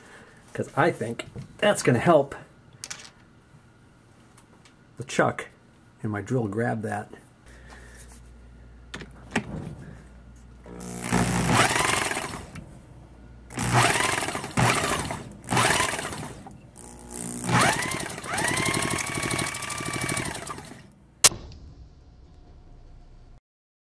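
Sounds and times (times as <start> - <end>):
cordless drill whining: 10.7 - 12.6, 13.5 - 20.9.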